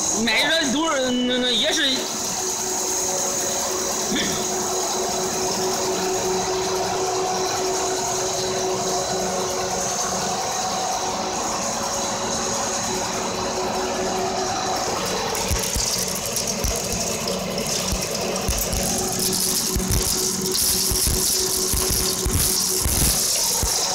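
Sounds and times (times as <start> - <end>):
machinery hum: 0.0 - 23.9
rice grains pouring into a box: 15.4 - 23.9.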